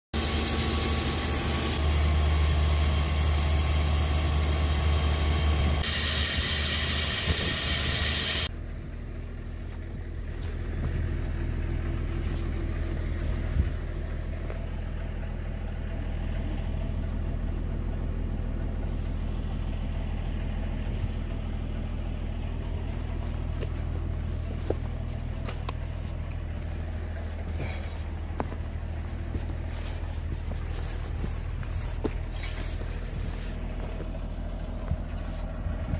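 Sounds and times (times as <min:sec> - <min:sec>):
machine engine idling: 0:08.4 - 0:35.9
rock drill grinding: 0:22.9 - 0:34.1.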